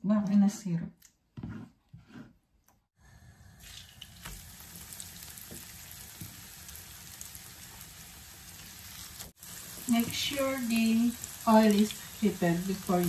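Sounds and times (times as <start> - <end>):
plantain sizzling in oil: 3.1 - 13.0.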